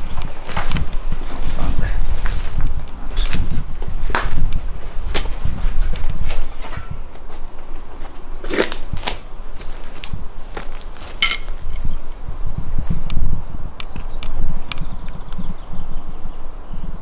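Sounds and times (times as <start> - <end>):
footsteps crunching on grit: 0.0 - 11.9
sharp cracks and knocks: 4.1 - 5.4.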